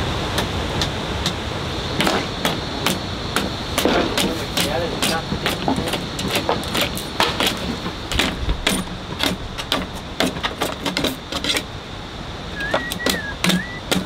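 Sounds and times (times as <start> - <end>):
tool knocking on hard surface: 2.0 - 11.5
thin high-pitched tone: 12.6 - 13.9.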